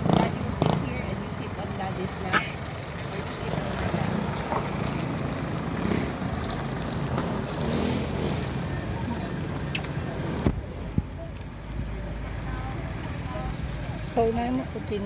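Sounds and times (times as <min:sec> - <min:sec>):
vehicles driving past: 0:00.0 - 0:15.0.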